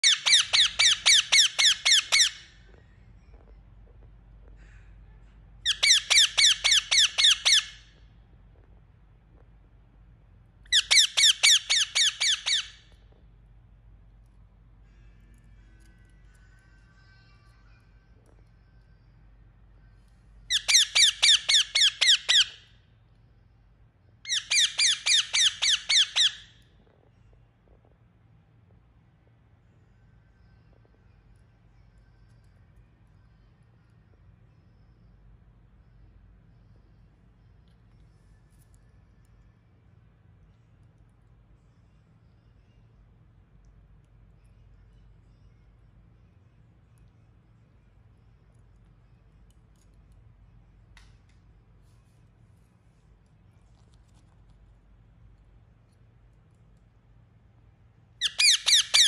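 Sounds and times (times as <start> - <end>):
parakeet shrill chirping calls: 0.0 - 2.6, 5.6 - 7.9, 10.7 - 12.9, 20.5 - 22.7, 24.3 - 26.6, 58.2 - 59.0.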